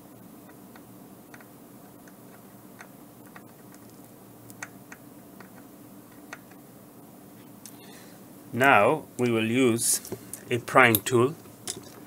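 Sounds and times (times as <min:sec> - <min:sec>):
steady low hum: 0:00.0 - 0:12.0
solder flux crackling and popping: 0:00.2 - 0:07.8.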